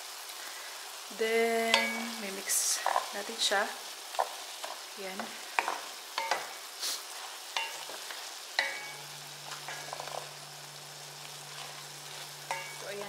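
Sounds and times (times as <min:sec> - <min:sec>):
food sizzling in a pot: 0:00.0 - 0:13.0
low steady hum: 0:08.6 - 0:13.0.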